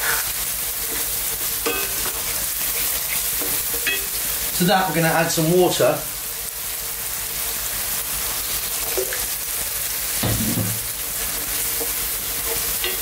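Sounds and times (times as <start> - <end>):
stew sizzling in a pan: 0.0 - 13.0
water pouring into pan: 8.8 - 9.3.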